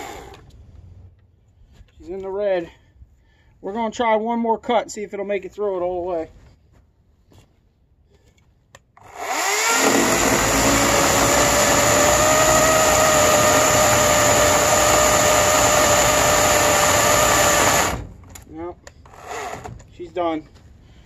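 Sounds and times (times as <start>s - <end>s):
electric chainsaw cutting wood: 9.0s - 18.1s, 19.1s - 19.7s.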